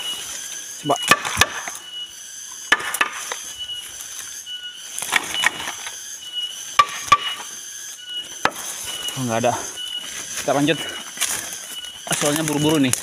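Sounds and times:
dry brush rustling: 10.0 - 13.0
woody stems snapping: 11.2 - 13.0.

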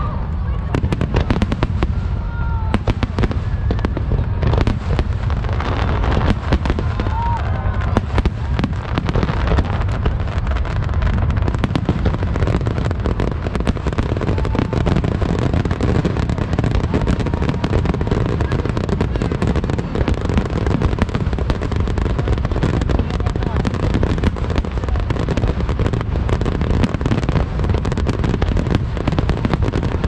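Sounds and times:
fireworks bursting: 0.0 - 30.0.

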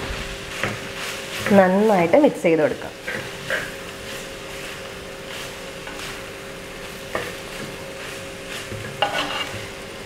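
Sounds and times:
wooden spatula scraping clay pot: 8.5 - 9.7.

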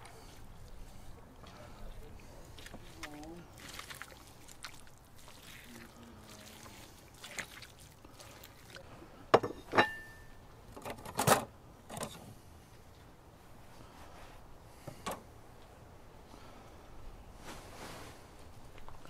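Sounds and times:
utensils clinking against dish: 9.4 - 10.3.

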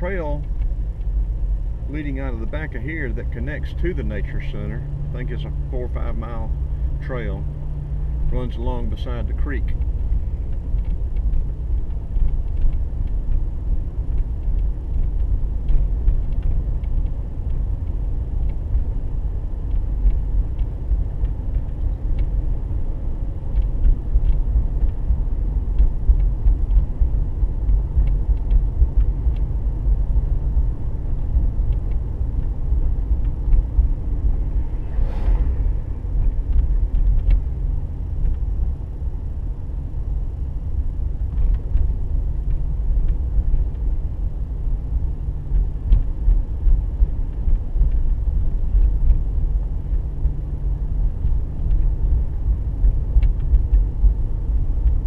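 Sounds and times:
car driving on paved road: 0.0 - 55.0
faint ticks: 9.7 - 22.6, 23.2 - 35.7, 41.2 - 43.9, 45.4 - 54.2
brief rushing sound: 34.2 - 37.8.

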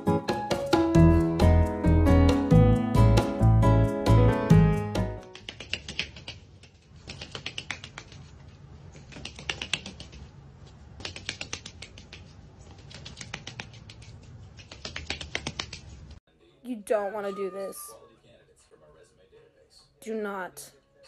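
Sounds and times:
duck feet clicking on concrete: 5.3 - 10.3, 10.9 - 16.2.

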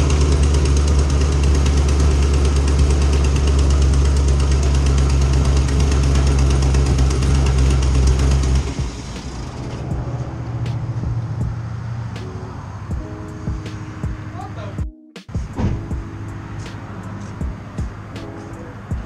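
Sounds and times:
car engine idling: 0.0 - 14.8.

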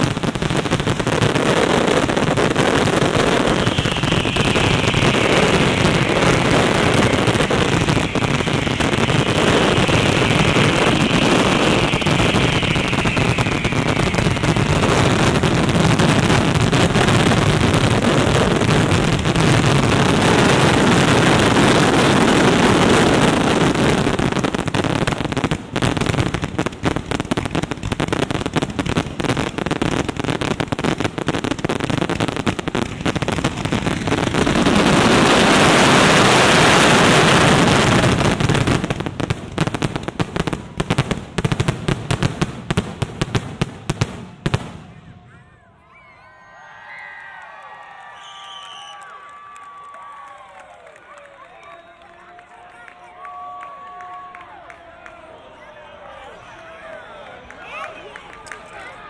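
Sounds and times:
heavy firework bangs: 0.0 - 45.1
fireworks crackling rumble: 0.0 - 45.4
fireworks whistling: 0.0 - 46.6, 48.0 - 49.2.

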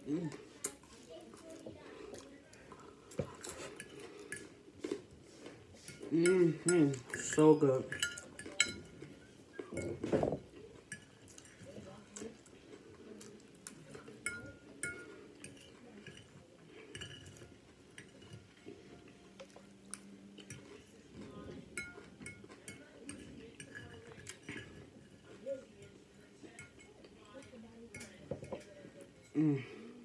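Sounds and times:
cutlery clinking on dish: 3.1 - 12.2, 13.6 - 29.6
chewing crispy food: 10.5 - 14.2.

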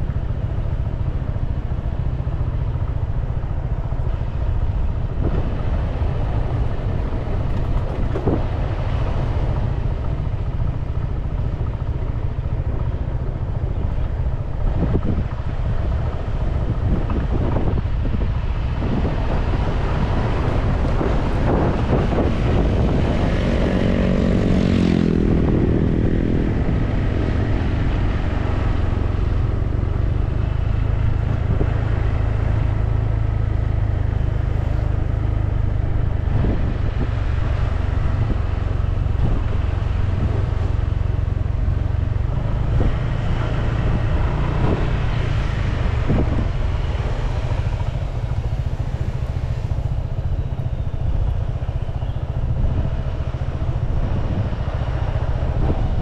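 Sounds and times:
road noise: 0.0 - 56.0
scooter engine running: 0.0 - 56.0
wind rumble on microphone: 0.0 - 56.0.

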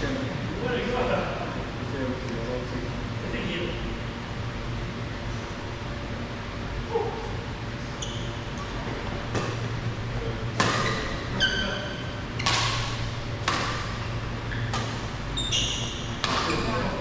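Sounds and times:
steady low hum: 0.0 - 17.0
shoes squeaking on court floor: 7.9 - 9.7, 10.6 - 13.0, 13.8 - 16.9
rackets hitting shuttlecock: 10.6 - 11.2, 12.4 - 15.1, 16.2 - 16.8.

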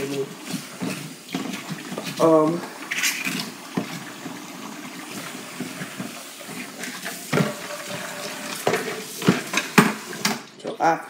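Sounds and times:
tap water running: 0.0 - 11.0
dishes knocking on counter: 7.3 - 10.0.

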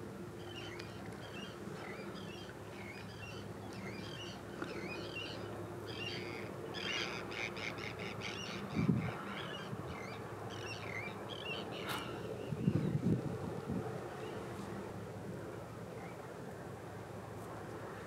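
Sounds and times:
steady low hum: 0.0 - 18.0
wind buffeting microphone: 8.6 - 10.1, 11.8 - 14.5.

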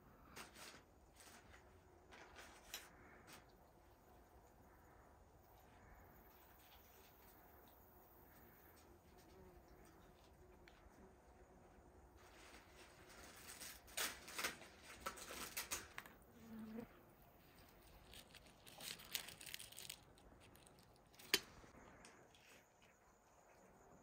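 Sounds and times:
flatbread rustling and tearing: 12.2 - 16.2, 17.5 - 21.5.

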